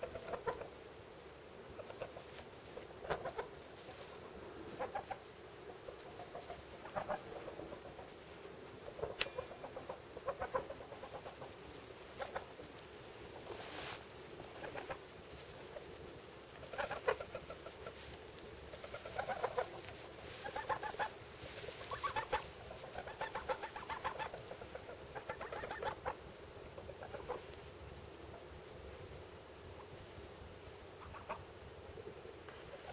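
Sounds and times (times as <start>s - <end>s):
geese calling: 1.8s - 12.7s, 16.5s - 27.6s, 30.9s - 31.5s
straw rustling: 1.8s - 25.6s.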